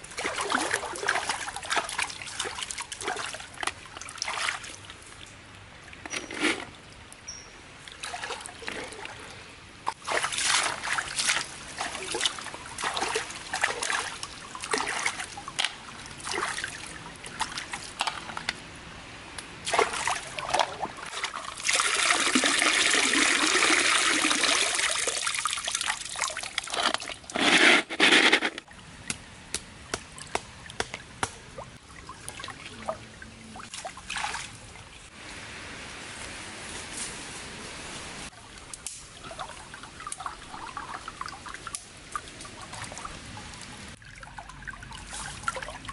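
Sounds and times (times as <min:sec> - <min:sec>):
rush of water: 0:00.0 - 0:07.0, 0:07.8 - 0:18.4, 0:19.6 - 0:28.8.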